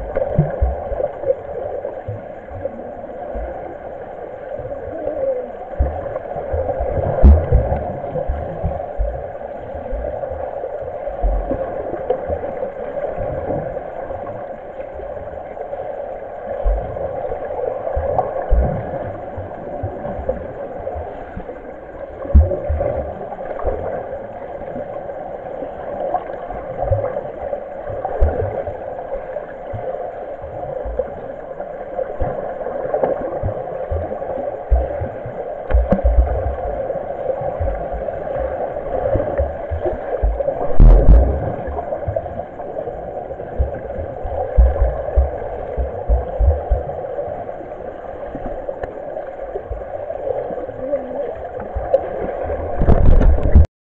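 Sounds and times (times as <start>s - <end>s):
underwater pool water churning: 0.0s - 53.7s
dull low thumps: 7.2s - 9.3s, 34.7s - 35.0s, 35.7s - 36.8s, 37.6s - 38.5s, 39.4s - 42.2s, 43.5s - 47.1s, 52.7s - 53.7s.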